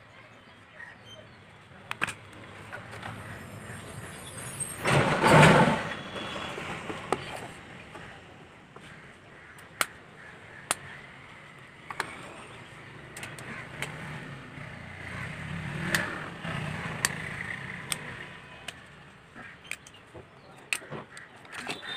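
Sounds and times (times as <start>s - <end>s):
plastic phone cover clicks: 1.9s - 2.3s.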